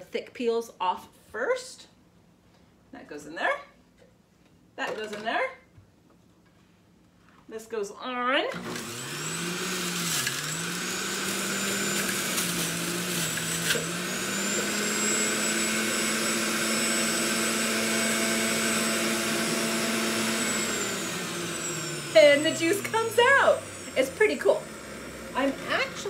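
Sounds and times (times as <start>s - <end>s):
electric juicer motor running: 8.5s - 26.0s.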